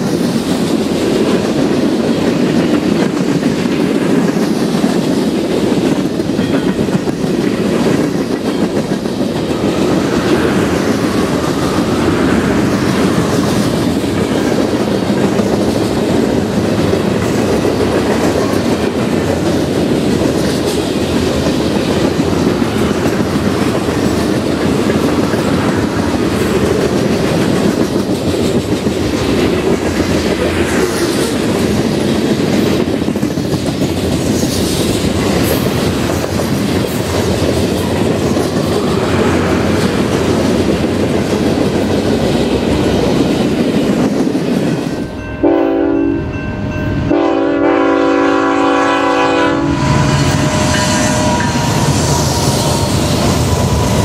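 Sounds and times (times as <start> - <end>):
wheel clatter on rail joints: 0.0 - 45.3
freight train rumbling past: 0.0 - 54.0
locomotive air horn: 45.4 - 46.2, 47.1 - 52.4.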